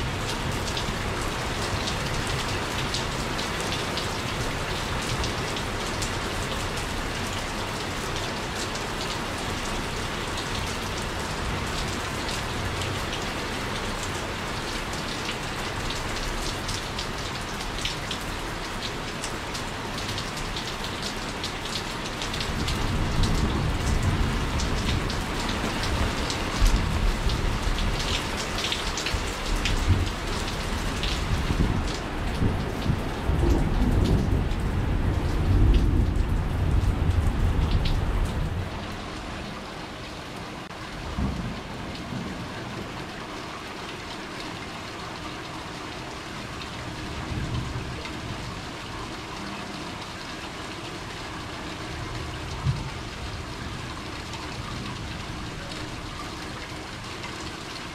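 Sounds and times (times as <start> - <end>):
steady rain falling: 0.0 - 57.9
thunder rumbling: 29.5 - 38.8, 41.0 - 42.5.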